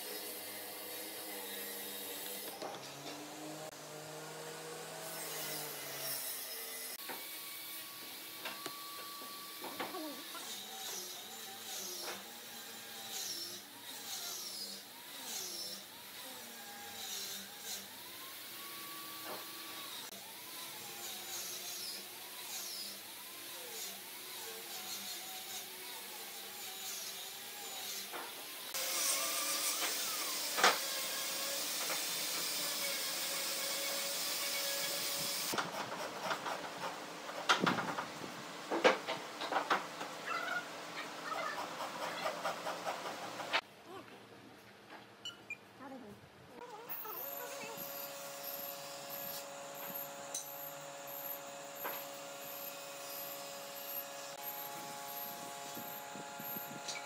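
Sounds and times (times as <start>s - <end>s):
rising and falling animal calls: 40.2s - 42.4s
electric power tool running: 47.0s - 57.0s.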